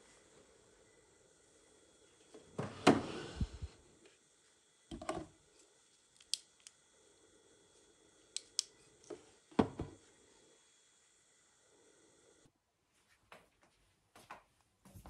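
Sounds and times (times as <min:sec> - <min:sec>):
flashlight clicks: 0:06.2 - 0:06.8, 0:08.3 - 0:08.7.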